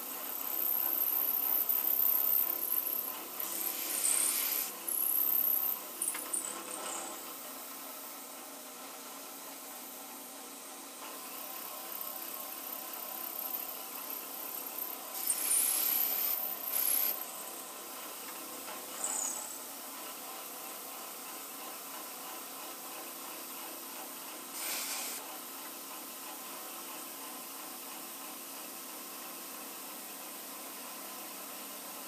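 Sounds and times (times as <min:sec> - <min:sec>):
milling machine running: 0:00.0 - 0:08.4.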